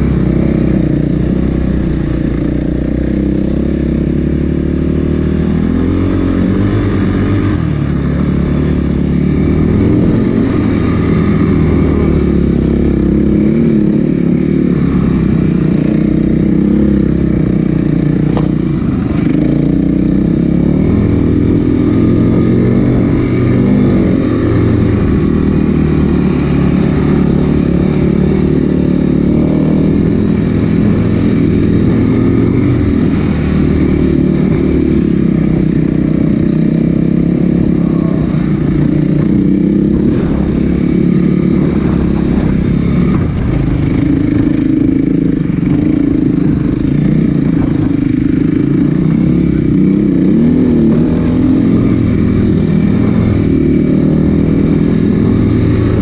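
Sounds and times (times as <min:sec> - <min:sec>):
motorbike engine revving: 0:00.0 - 0:56.0.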